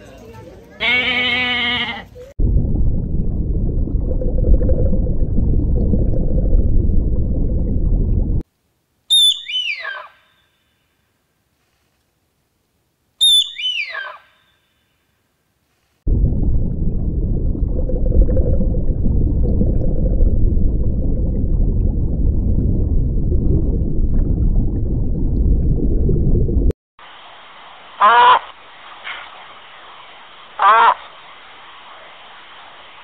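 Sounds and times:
aquarium water rumbling: 0:02.4 - 0:08.4, 0:16.1 - 0:28.0.

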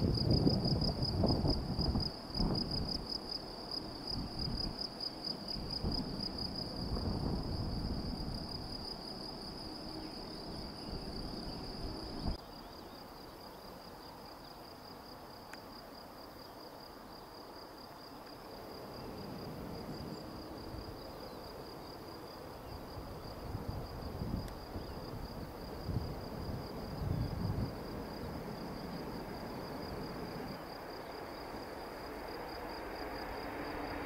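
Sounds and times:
gusty low rumble: 0:00.0 - 0:03.0, 0:05.5 - 0:09.0
crickets trilling: 0:00.0 - 0:34.0.

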